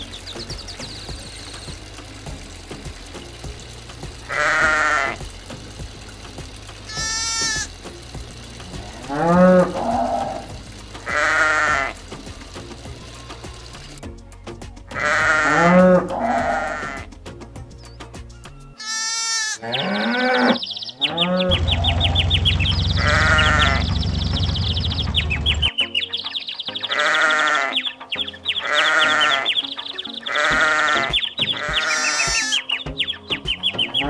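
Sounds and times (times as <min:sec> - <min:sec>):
low steady hum: 0:00.0 - 0:14.8, 0:21.1 - 0:25.7
background music: 0:00.0 - 0:34.0
animal bleating: 0:04.3 - 0:05.2, 0:06.9 - 0:07.7, 0:08.8 - 0:12.0, 0:14.9 - 0:17.1, 0:18.8 - 0:24.0, 0:26.8 - 0:27.8, 0:28.6 - 0:29.6, 0:30.2 - 0:32.7.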